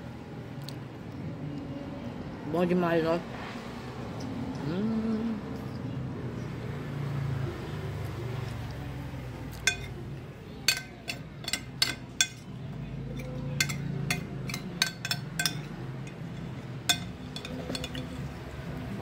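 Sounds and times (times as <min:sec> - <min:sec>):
metal spoon clinking on glass bowl: 0:09.6 - 0:10.0, 0:10.7 - 0:12.5, 0:13.1 - 0:18.3.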